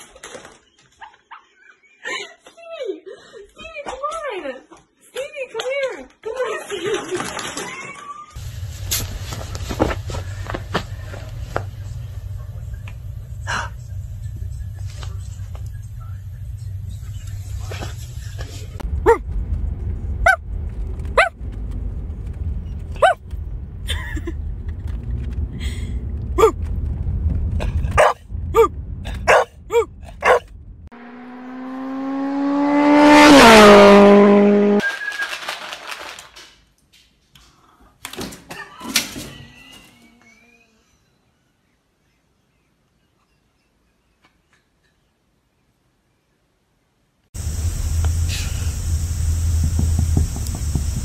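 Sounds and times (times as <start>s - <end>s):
car interior rumble: 8.4s - 34.8s, 47.4s - 51.0s
loud drawn-out pitched sound: 11.1s - 34.8s, 47.4s - 51.0s
dog barking: 23.0s - 23.2s, 27.9s - 30.5s.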